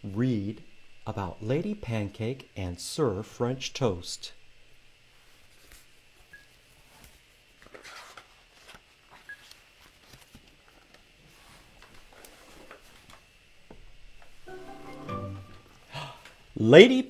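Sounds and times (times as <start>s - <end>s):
book pages rustling: 6.8s - 13.2s.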